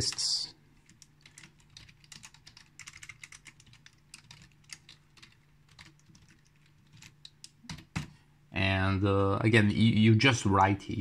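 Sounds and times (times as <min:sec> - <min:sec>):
computer keyboard typing: 0:00.8 - 0:08.2.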